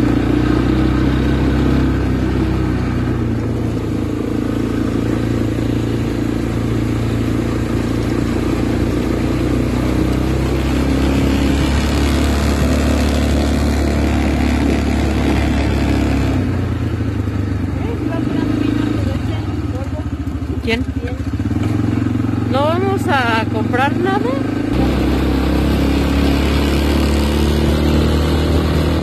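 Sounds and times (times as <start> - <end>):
quad bike engine running: 0.0 - 29.0.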